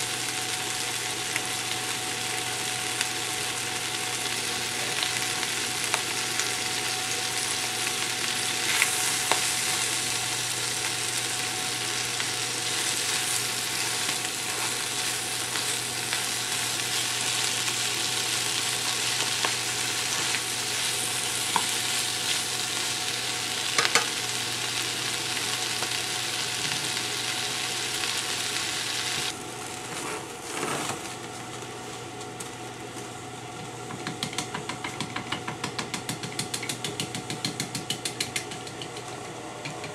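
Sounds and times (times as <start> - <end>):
food sizzling in a frying pan: 0.0 - 29.8
chopsticks stirring: 12.5 - 22.4.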